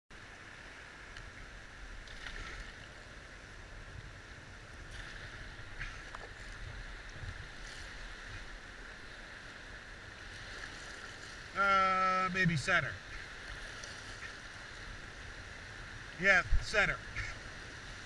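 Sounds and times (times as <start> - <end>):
whitewater rapids rushing: 11.4 - 13.4, 16.2 - 18.0.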